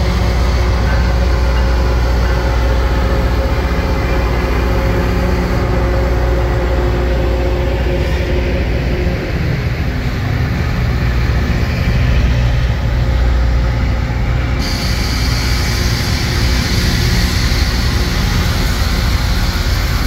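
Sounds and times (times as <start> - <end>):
train rumbling past: 0.0 - 20.0
harsh high hiss of rail grinding: 13.6 - 20.0.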